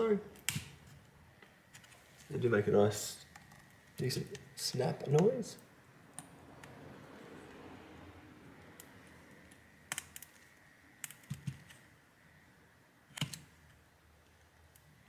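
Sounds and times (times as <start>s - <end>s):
connectors clicking into sockets: 8.7s - 11.8s, 13.1s - 14.9s.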